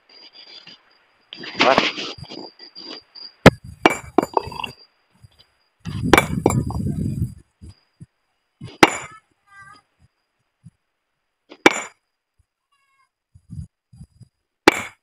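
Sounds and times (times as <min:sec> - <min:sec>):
stone clinking on stone: 0:01.4 - 0:04.9, 0:05.9 - 0:07.1
low rumble of rock shifting: 0:01.4 - 0:08.8, 0:13.3 - 0:14.4
rocks clattering: 0:03.5 - 0:04.8, 0:05.9 - 0:07.2, 0:08.6 - 0:09.1.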